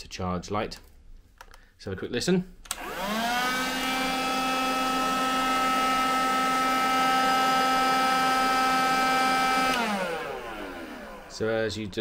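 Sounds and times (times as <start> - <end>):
handheld vacuum running: 2.7 - 11.8.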